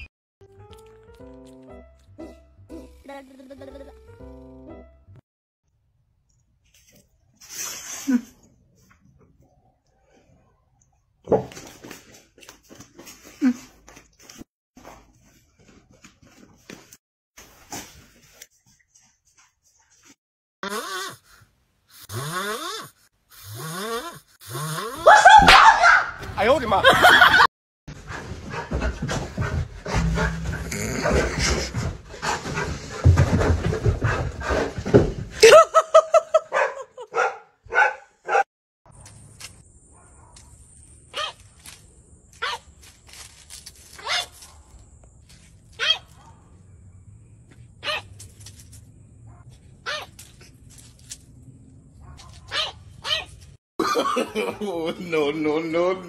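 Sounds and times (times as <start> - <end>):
dog whining yips: 25.0 - 26.2, 45.8 - 46.2, 52.1 - 53.4.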